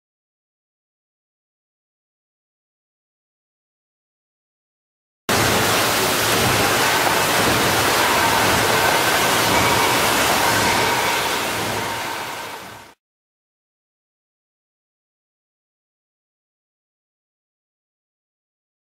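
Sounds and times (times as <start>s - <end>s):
machinery hissing noise: 5.3s - 13.0s
faint machine whines: 6.4s - 13.0s.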